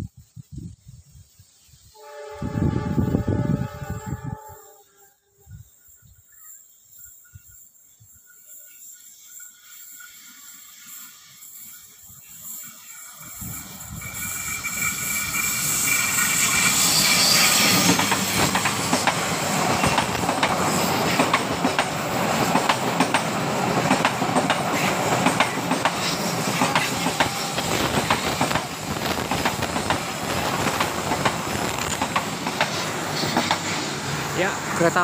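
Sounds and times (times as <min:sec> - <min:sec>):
train passing close by: 0:01.8 - 0:35.0
high-pitched wheel squeal: 0:13.2 - 0:18.4
train wheels clattering over rail joints: 0:13.5 - 0:34.1.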